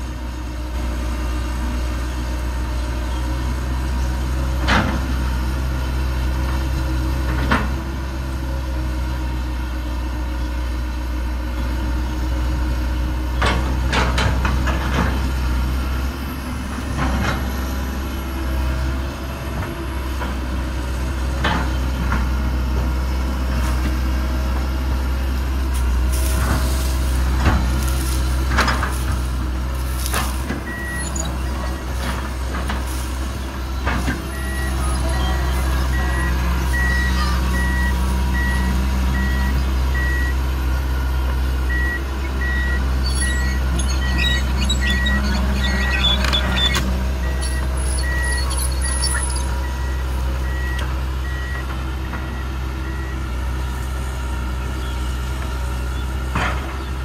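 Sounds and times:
excavator diesel engine running: 0.0 - 57.0
travel alarm beeping: 30.7 - 32.0, 34.3 - 40.4, 41.7 - 53.2.

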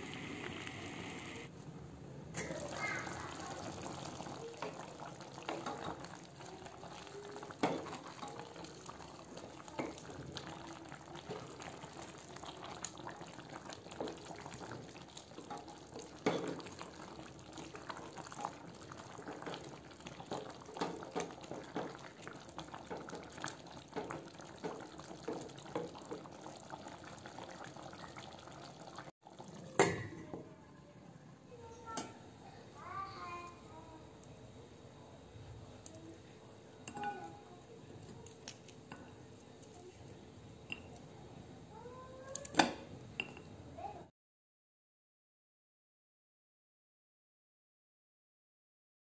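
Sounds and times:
sauce bubbling in a pot: 0.0 - 1.4, 2.4 - 30.3.

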